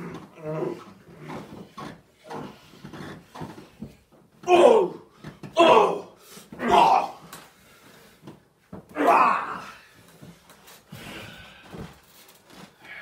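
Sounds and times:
wrestlers grunting and crying out: 0:00.0 - 0:01.5, 0:04.4 - 0:07.4, 0:08.8 - 0:10.0.

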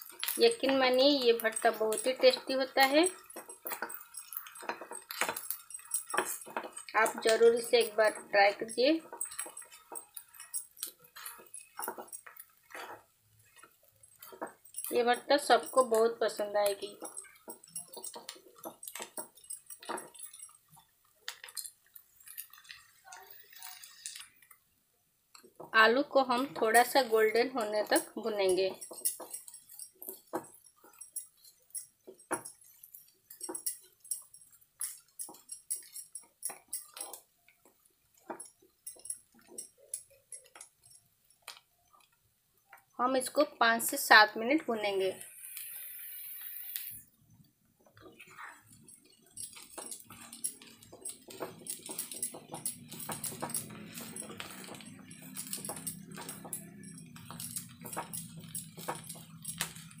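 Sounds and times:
wooden spatula scraping frying pan: 0:11.0 - 0:14.7.

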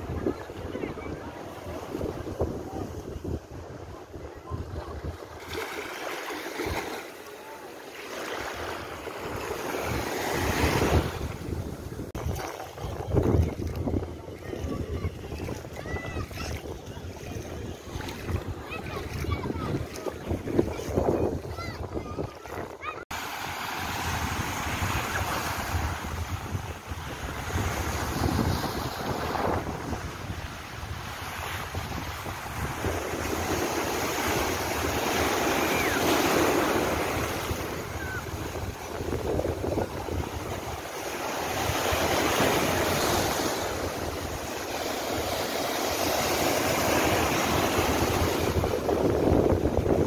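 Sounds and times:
wind on microphone: 0:00.0 - 0:06.0, 0:08.5 - 0:50.0
waves breaking on rocky shore: 0:31.4 - 0:50.0.

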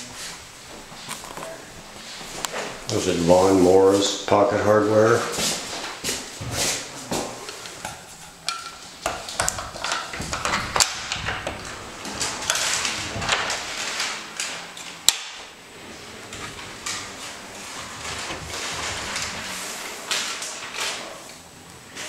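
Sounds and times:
pocket door sliding on track: 0:09.2 - 0:14.8, 0:15.4 - 0:21.1.

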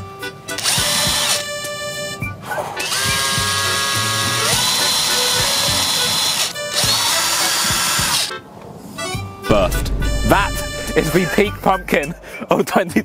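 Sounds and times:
cordless power drill whining: 0:00.6 - 0:02.0, 0:02.8 - 0:08.3.

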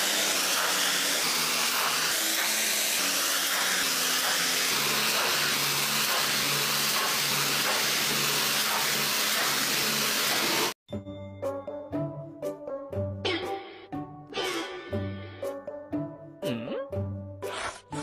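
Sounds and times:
pressure washer spraying water: 0:00.0 - 0:10.8.

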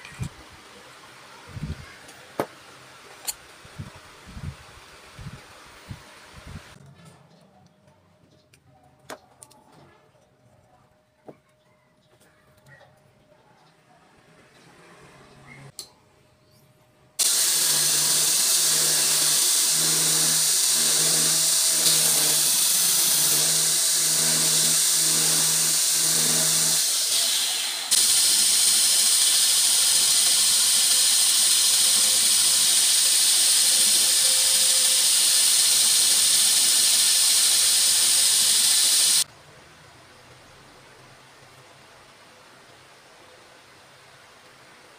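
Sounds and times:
belt grinder hissing: 0:17.2 - 0:39.3.

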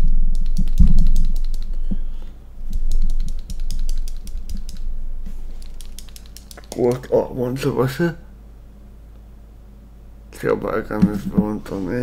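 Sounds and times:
dull handling thumps: 0:10.9 - 0:11.8.

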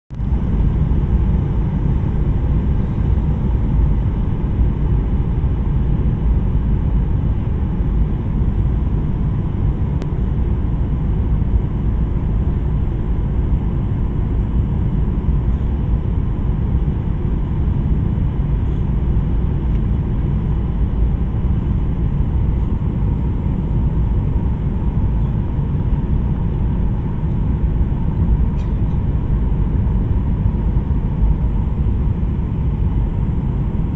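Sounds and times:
airplane cabin engine rumble: 0:00.1 - 0:33.9.

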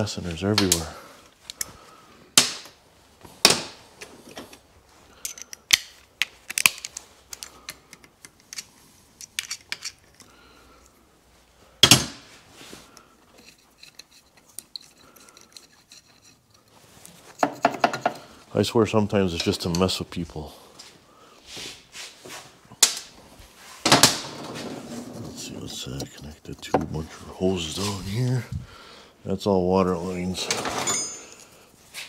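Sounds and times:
metal tools clinking and clanking: 0:13.3 - 0:18.3, 0:30.4 - 0:31.6.

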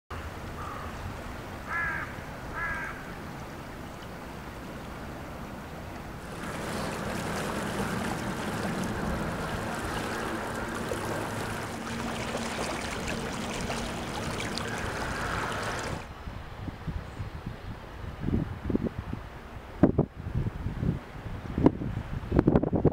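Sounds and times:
floodwater rushing: 0:06.0 - 0:16.1
steady low hum: 0:06.1 - 0:16.1.

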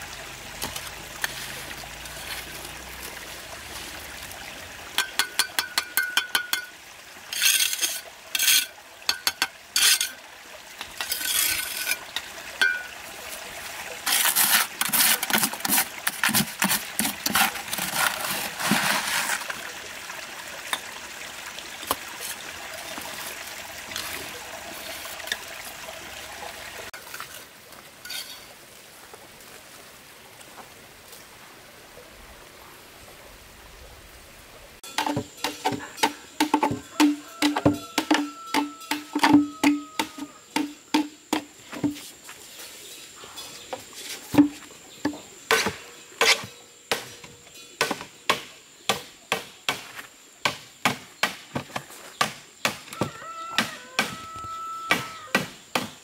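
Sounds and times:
stream running: 0:00.0 - 0:56.0
trowel clinking and scraping: 0:05.0 - 0:10.2, 0:10.8 - 0:13.0, 0:14.0 - 0:19.6, 0:27.0 - 0:28.5, 0:34.8 - 0:44.6, 0:45.5 - 0:47.8.

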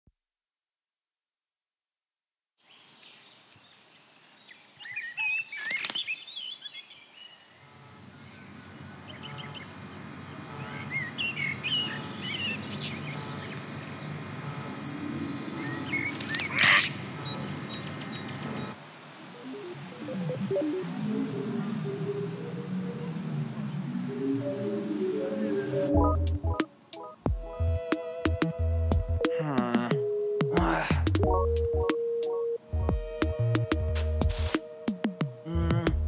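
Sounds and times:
birds chirping and twittering: 0:02.6 - 0:25.9
low electric buzz: 0:07.6 - 0:18.8.

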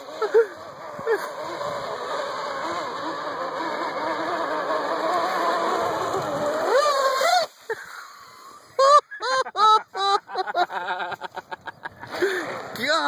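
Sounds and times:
electric motor running: 0:00.0 - 0:07.8.

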